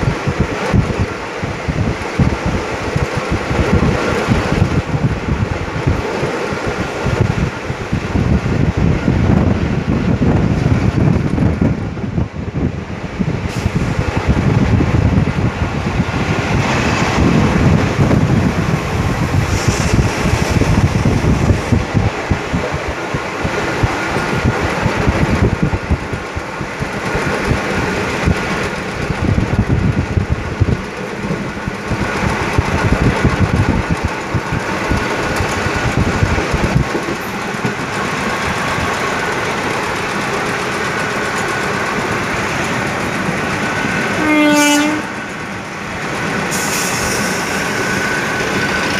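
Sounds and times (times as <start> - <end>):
train coach rumbling on rails: 0.0 - 48.9.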